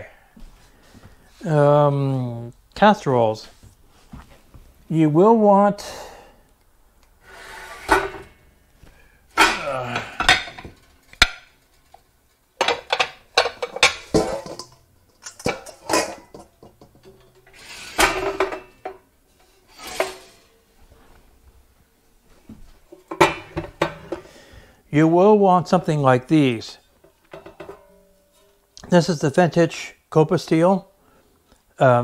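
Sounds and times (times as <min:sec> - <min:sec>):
pans clanking together: 0:09.4 - 0:12.0, 0:12.6 - 0:20.6, 0:22.9 - 0:24.3, 0:27.3 - 0:28.5.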